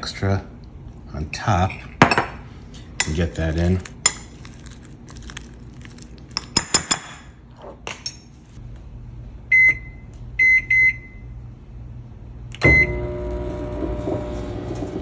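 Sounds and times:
microwave keypad beeps: 9.5 - 11.2, 12.6 - 13.0.

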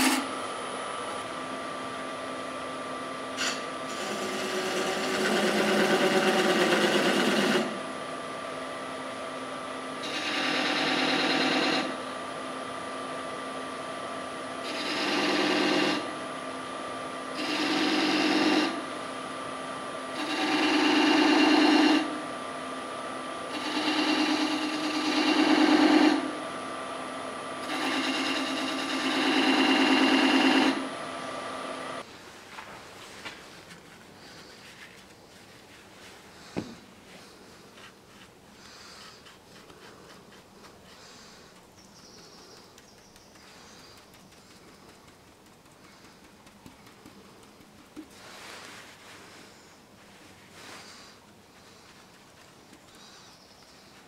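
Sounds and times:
turning tool cutting wood: 3.4 - 7.9
wood lathe humming: 3.4 - 8.1, 10.0 - 12.0, 14.6 - 16.2, 17.3 - 18.8, 20.1 - 22.1.

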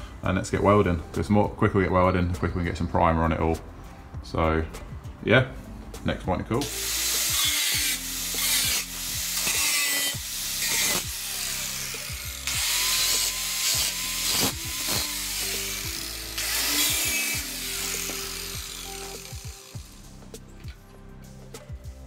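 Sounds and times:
angle grinder grinding steel: 6.6 - 20.8.

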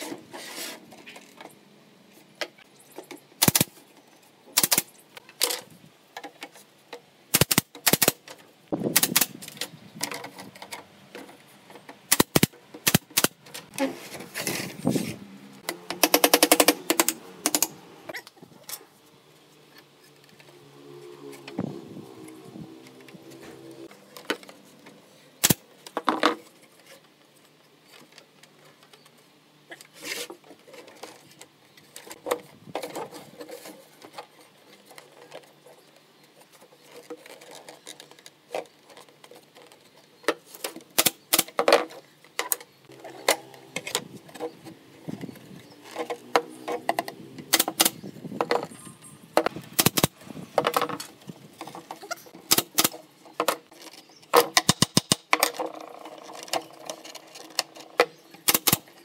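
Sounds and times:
wooden slats clacking and knocking: 15.6 - 17.8, 45.8 - 48.7, 49.4 - 59.0.

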